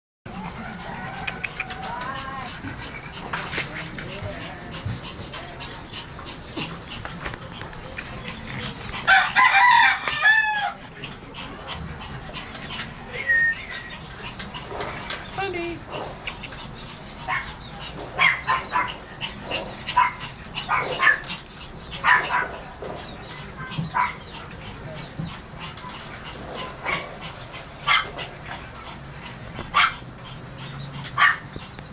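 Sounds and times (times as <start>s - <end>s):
rooster crowing: 9.1s - 10.8s.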